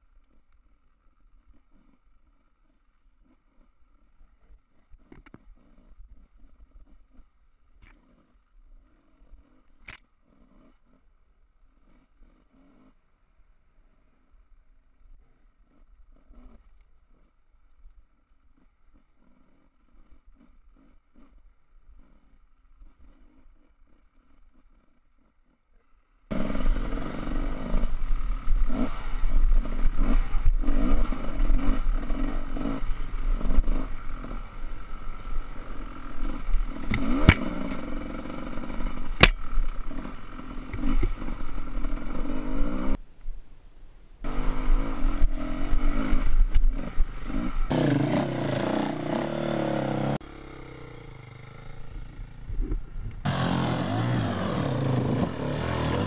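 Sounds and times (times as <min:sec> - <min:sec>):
dirt bike engine: 0:00.0 - 0:43.0, 0:44.2 - 0:56.0
wind rumble on microphone: 0:52.0 - 0:53.3.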